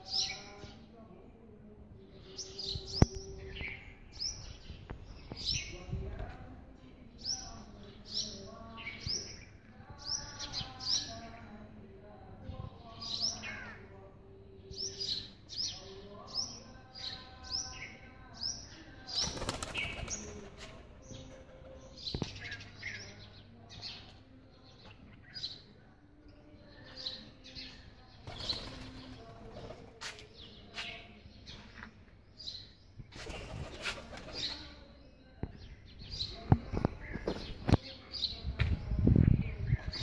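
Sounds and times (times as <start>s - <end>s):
birds chirping: 0.0s - 40.0s
pigeons flapping wings: 19.2s - 20.6s, 28.3s - 29.8s, 33.2s - 34.5s.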